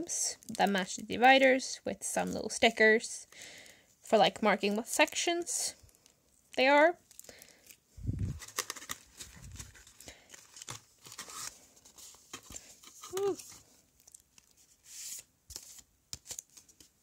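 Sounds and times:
paper rustling and crinkling: 7.1 - 17.0.

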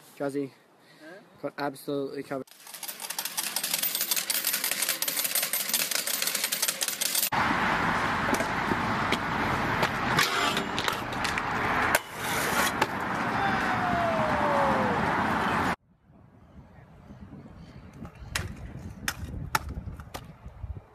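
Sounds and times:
coins rattling into a tray: 2.5 - 7.3
scooter wheels rolling on concrete: 2.5 - 15.8.

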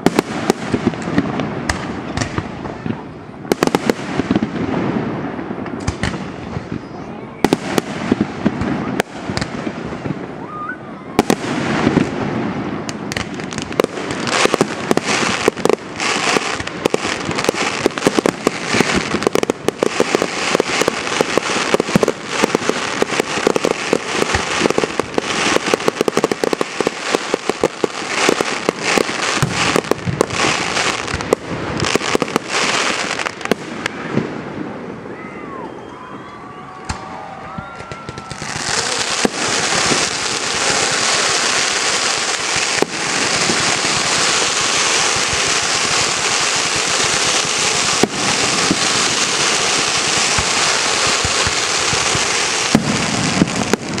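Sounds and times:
fireworks crackling: 0.0 - 54.0
firework shells bursting: 37.8 - 54.0.

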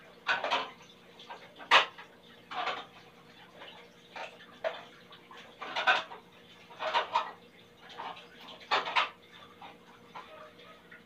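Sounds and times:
dishes clattering: 0.2 - 2.9, 5.6 - 9.2.

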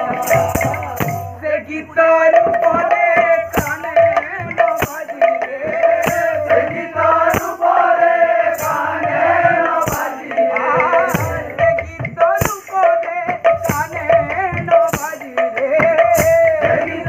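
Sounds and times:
percussion strokes: 0.0 - 17.0
male voices chanting in chorus: 5.4 - 11.8.

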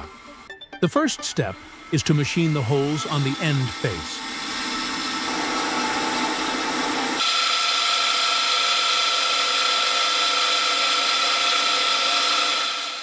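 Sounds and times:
high whine: 0.0 - 7.2
milling machine drilling metal: 0.0 - 13.0.

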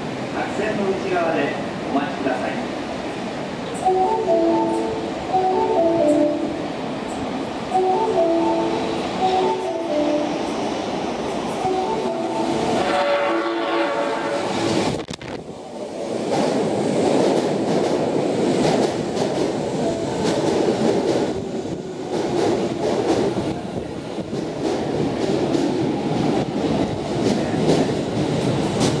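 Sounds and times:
electric train rolling: 2.9 - 29.0.

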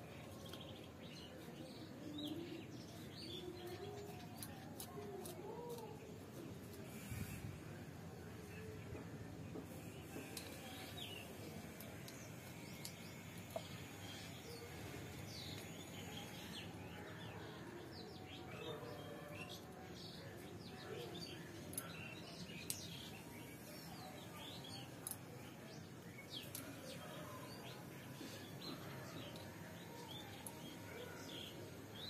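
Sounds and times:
small birds chirping: 0.0 - 7.6, 8.3 - 32.0
faint outdoor background noise: 0.0 - 32.0.

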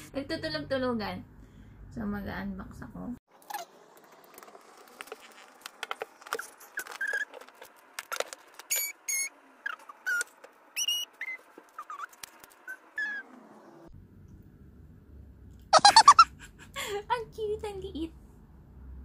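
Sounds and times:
squeaky chirps: 3.4 - 3.8, 6.2 - 7.4, 8.0 - 13.4
scrapes and clicks: 9.7 - 13.4.

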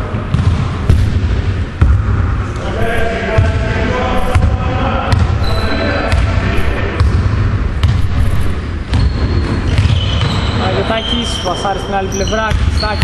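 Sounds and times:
basketball bouncing on wooden floor: 0.3 - 2.2, 7.0 - 10.6, 12.4 - 13.0.

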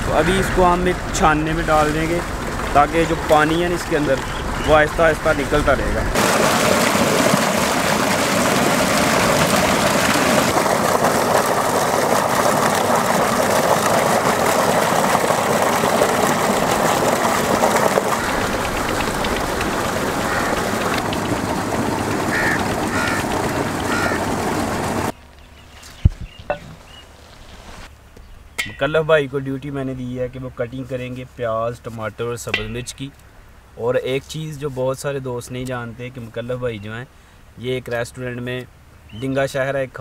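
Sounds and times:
water gushing and splashing: 0.0 - 25.2.

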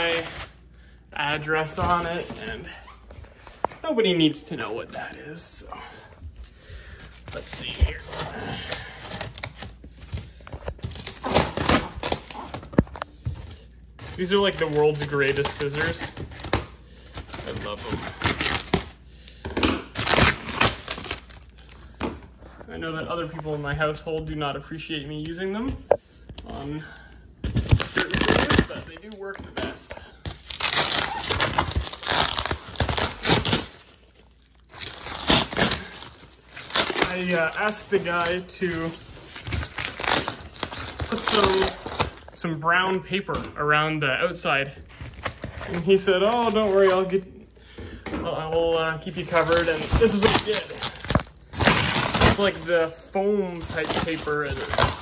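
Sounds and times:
cardboard being torn: 10.8 - 12.8, 19.9 - 21.4, 27.6 - 29.0, 30.4 - 34.0, 34.7 - 42.2, 49.2 - 55.0
packing tape pulled apart: 19.8 - 21.5, 27.6 - 29.2, 30.3 - 42.3, 49.3 - 55.0.

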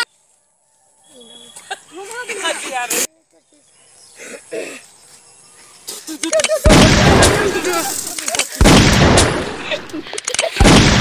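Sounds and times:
gunshot cracks: 6.7 - 7.8, 8.6 - 9.9, 10.6 - 11.0
heavy explosions rumbling: 6.7 - 8.0, 8.6 - 9.9, 10.6 - 11.0.

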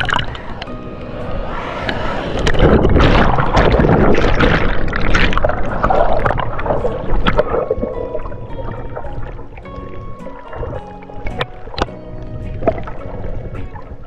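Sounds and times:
low rumble: 0.0 - 10.2
rushing splashing water: 0.0 - 14.0.

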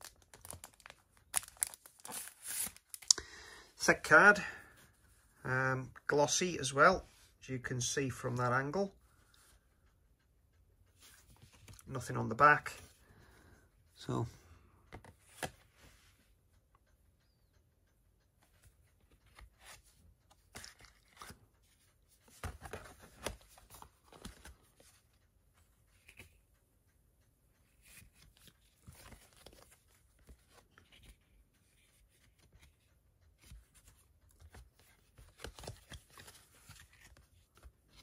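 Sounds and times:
card and paper packaging rustling: 0.0 - 3.0, 19.1 - 25.2, 27.7 - 38.0.

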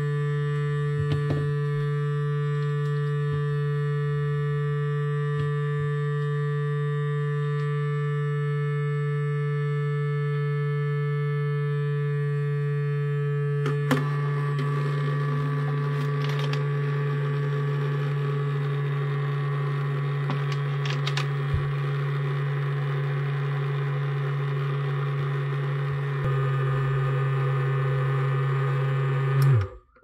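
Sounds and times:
jewellery cleaner buzzing: 11.4 - 30.0.

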